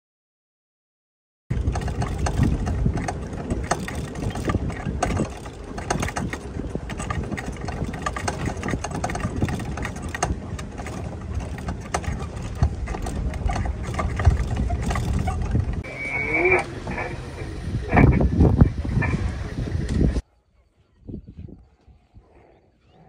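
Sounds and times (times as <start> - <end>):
small clicks and rattles: 1.5 - 15.8
vehicle engine low rumble: 1.5 - 20.2.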